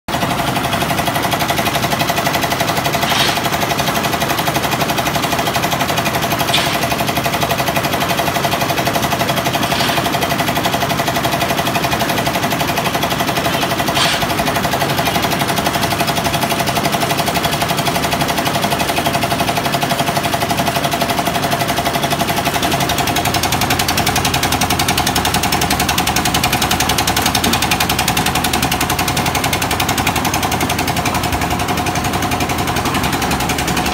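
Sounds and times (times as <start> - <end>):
concrete mixer engine knocking: 0.1 - 33.9
sharp metallic knocks: 6.5 - 7.1.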